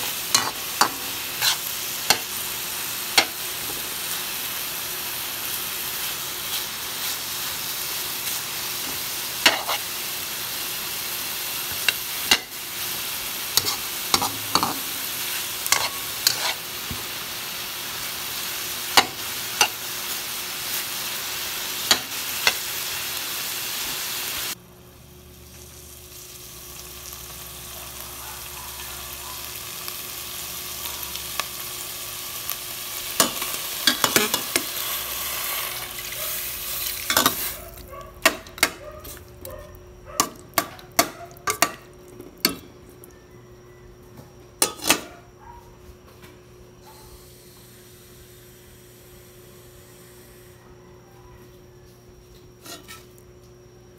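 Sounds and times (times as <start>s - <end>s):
food sizzling in a pan: 0.0s - 39.4s, 46.9s - 50.6s, 52.5s - 53.2s
metal spatula scraping a pan: 0.3s - 2.3s, 9.4s - 9.9s, 13.5s - 14.9s, 15.6s - 16.7s, 52.6s - 53.2s.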